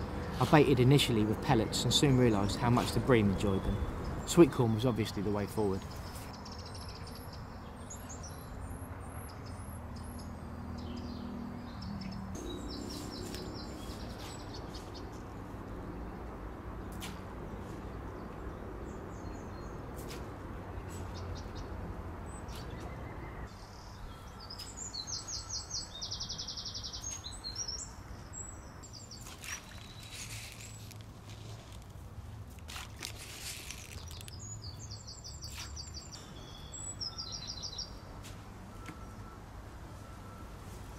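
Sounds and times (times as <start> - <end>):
low outdoor background: 0.0 - 40.9
small birds trilling: 0.5 - 16.2, 20.8 - 31.8, 33.0 - 38.0.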